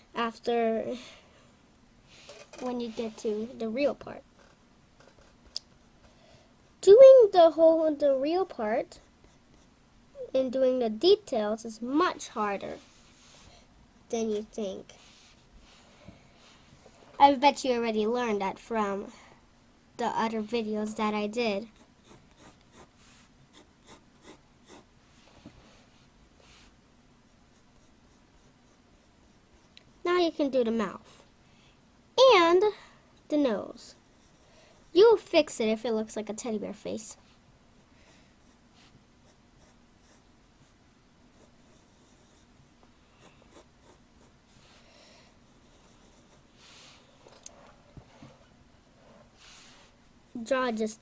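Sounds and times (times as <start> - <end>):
pencil scratching on paper: 4.4 - 6.8, 21.6 - 24.9, 27.4 - 29.8, 34.0 - 35.0, 38.4 - 38.6, 39.2 - 42.5, 43.2 - 44.6, 45.5 - 46.6.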